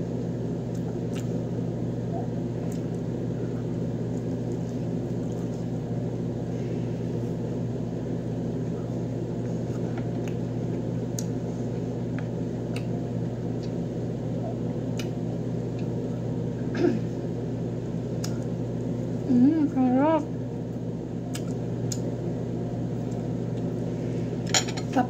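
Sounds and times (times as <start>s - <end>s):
chewing clicks: 21.3s - 22.1s.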